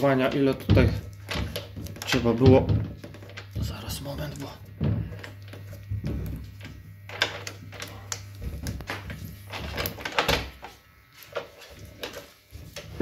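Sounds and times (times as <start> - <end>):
knocks and clicks of wooden cabinet: 0.6 - 1.5, 2.4 - 3.0.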